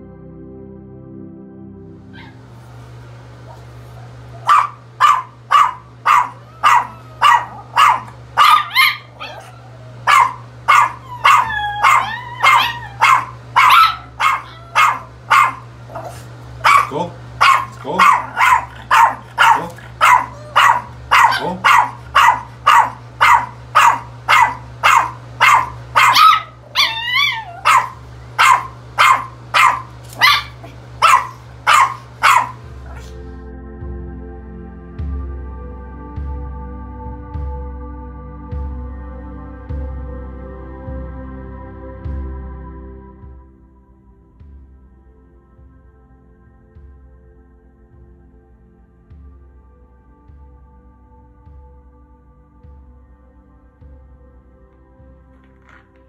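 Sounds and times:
small dog barking and yipping: 0:02.2 - 0:02.4, 0:03.5 - 0:33.1.

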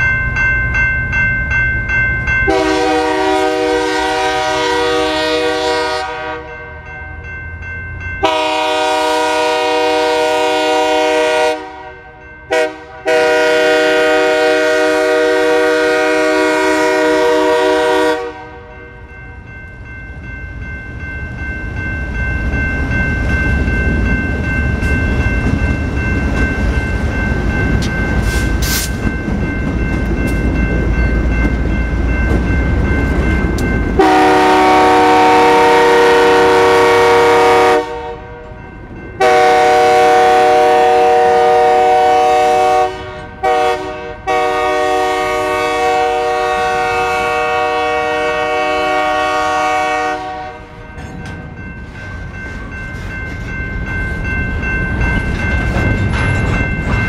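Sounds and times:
crossing bell ringing: 0:00.0 - 0:57.0
train rumbling past: 0:00.0 - 0:57.0
locomotive air horn blasts: 0:02.5 - 0:06.6, 0:08.2 - 0:18.7, 0:34.0 - 0:38.4, 0:39.2 - 0:50.8.

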